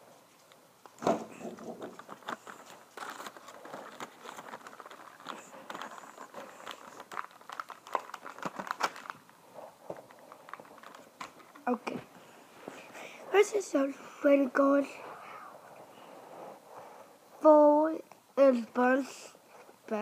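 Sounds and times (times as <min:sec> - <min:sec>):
packaging crinkling and rustling: 0:00.4 - 0:12.0.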